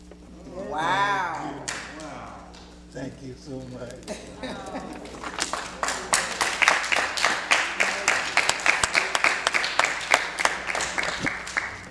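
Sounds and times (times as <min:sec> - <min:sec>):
crowd applause: 0:00.7 - 0:02.6, 0:04.2 - 0:11.9
hand clapping close by: 0:01.6 - 0:02.7, 0:05.0 - 0:11.9.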